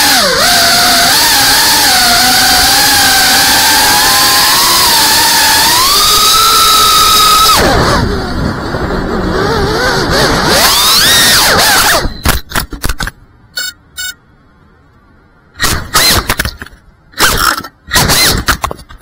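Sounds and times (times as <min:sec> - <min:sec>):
drone motors whining: 0:00.0 - 0:12.4, 0:15.6 - 0:16.6, 0:17.2 - 0:18.6.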